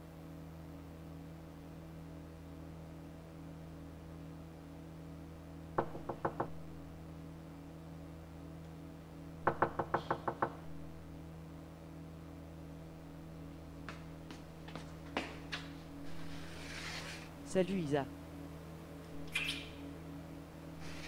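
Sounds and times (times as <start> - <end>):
steady low hum: 0.0 - 21.0
knuckles knocking on a door: 5.8 - 6.6, 9.4 - 10.7.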